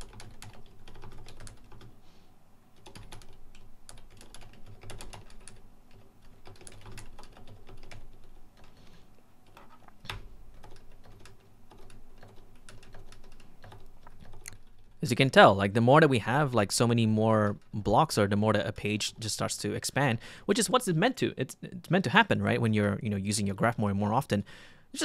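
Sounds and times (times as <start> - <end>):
typing on computer keyboard: 0.0 - 1.9, 2.8 - 8.8, 9.4 - 15.0.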